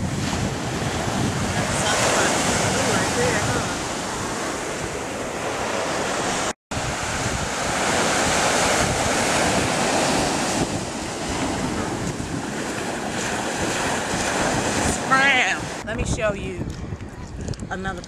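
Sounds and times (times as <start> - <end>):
ocean surf on sand: 0.0 - 16.0
wind buffeting microphone: 0.0 - 18.0.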